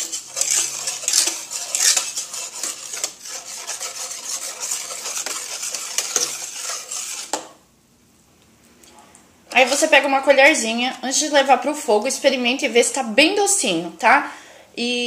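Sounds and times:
whisk scraping a metal pot: 0.0 - 7.6.

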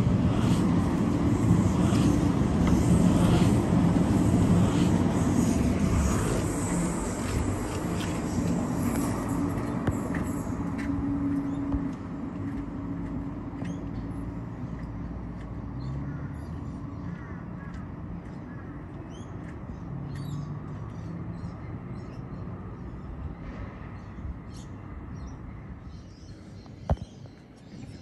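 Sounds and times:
vehicle engine humming: 0.0 - 21.5
birds chirping: 0.0 - 28.0.

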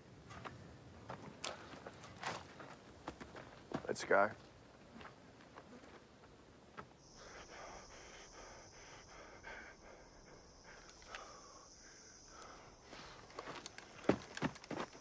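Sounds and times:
footsteps on rocky ground: 0.3 - 6.9, 13.0 - 15.0
quiet breathing: 7.0 - 14.1.

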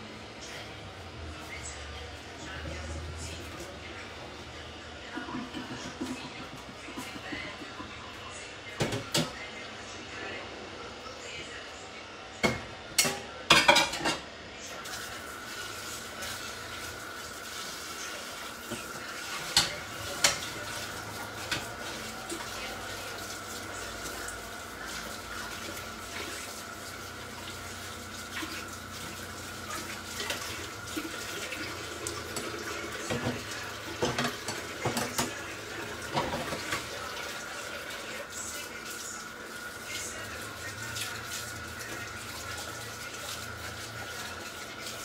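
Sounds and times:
kitchen tap running: 2.4 - 8.0, 8.8 - 9.4, 14.8 - 45.0
dishes and utensils knocking: 34.0 - 35.4.

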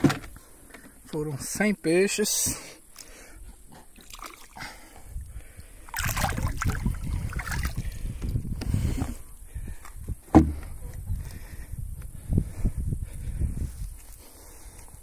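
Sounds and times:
water splashing into pond: 4.0 - 4.8, 5.8 - 8.0.

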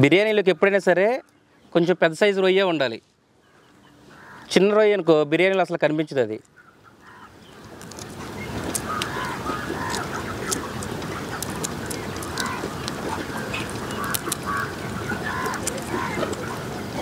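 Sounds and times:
fowl calling: 3.4 - 5.2, 6.4 - 17.0.

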